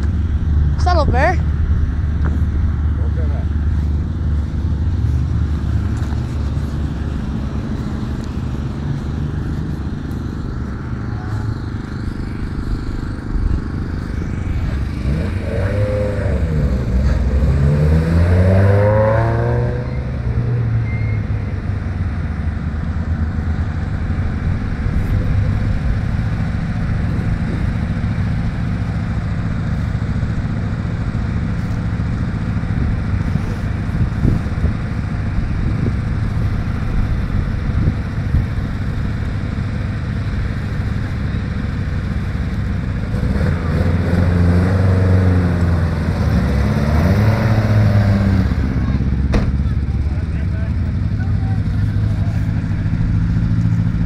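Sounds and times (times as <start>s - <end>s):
steady engine drone: 0.0s - 54.0s
rally car engine accelerating: 1.8s - 54.0s.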